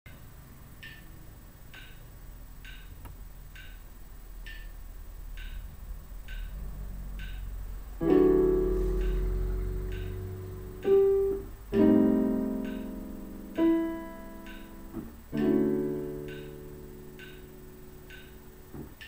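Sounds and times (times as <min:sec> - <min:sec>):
metronome ticking: 0:00.1 - 0:19.0
digital piano chords: 0:05.4 - 0:19.0.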